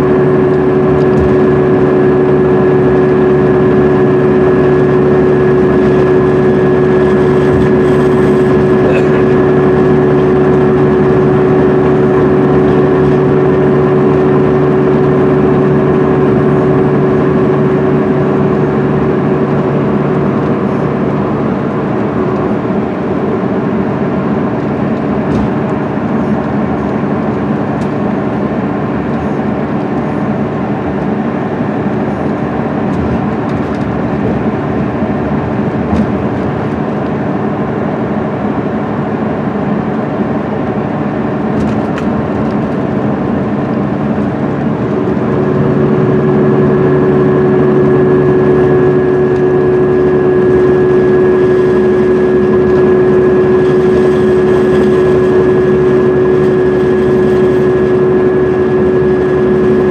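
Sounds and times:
bus diesel engine drone: 0.0 - 59.9
tyre and road noise: 0.0 - 59.9.

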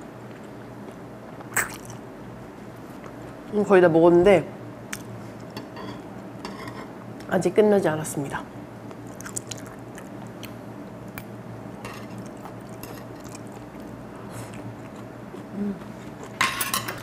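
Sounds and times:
person chewing: 0.3 - 2.0, 9.0 - 11.3, 12.0 - 16.4
person humming: 15.5 - 15.9.

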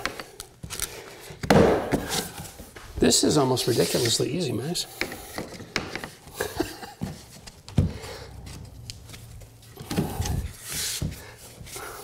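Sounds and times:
wood rubbing and scraping: 2.0 - 4.4, 5.0 - 12.0.

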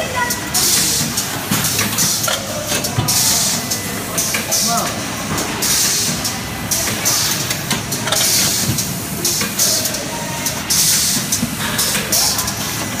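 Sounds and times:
pneumatic valves hissing: 5.6 - 10.0.

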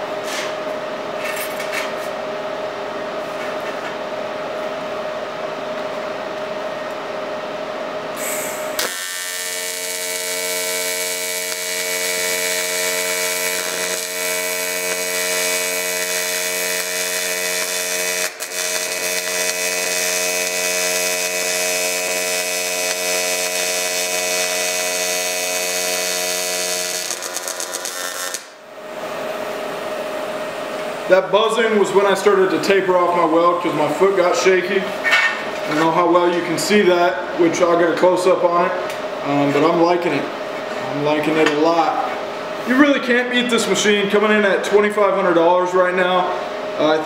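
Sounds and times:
welding arc buzzing: 8.2 - 34.5.

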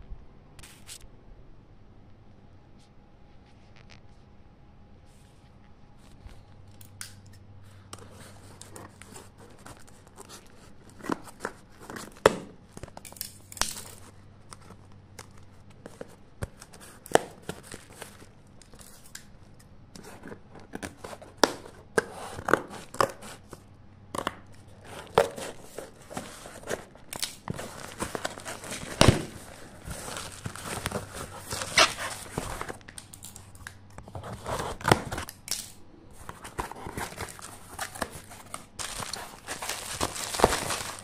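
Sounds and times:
plastic wrap crinkling: 8.0 - 19.4, 24.5 - 35.5, 36.1 - 41.0
packing tape tearing: 24.2 - 41.0.

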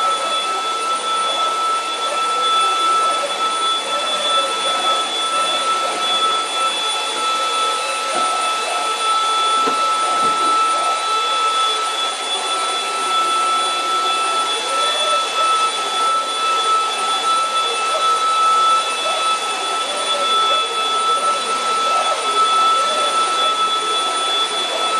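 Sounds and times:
stick vacuum cleaners whining: 0.0 - 24.9.

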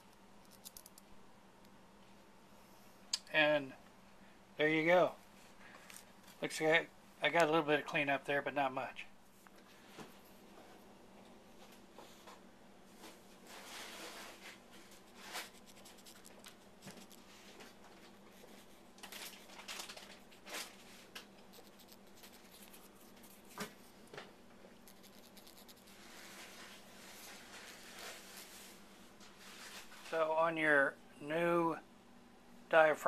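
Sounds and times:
faint low hum: 0.0 - 33.0
cotton swab scratching metal: 15.0 - 17.4, 21.4 - 24.1, 24.8 - 26.2.

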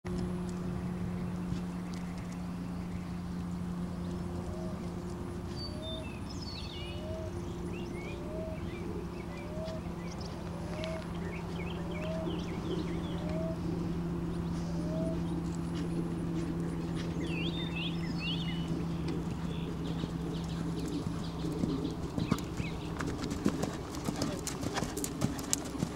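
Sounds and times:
birds chirping: 0.1 - 25.9
steady low hum: 0.1 - 25.9
bird repeating rising note: 5.6 - 22.9.

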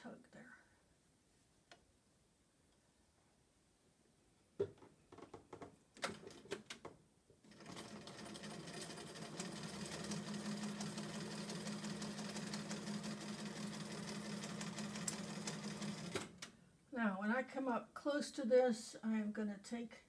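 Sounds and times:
sewing machine stitching: 7.4 - 16.5.

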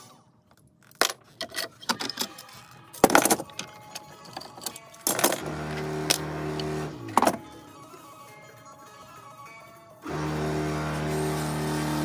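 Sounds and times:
metal clamps clattering on wood: 3.0 - 7.5.

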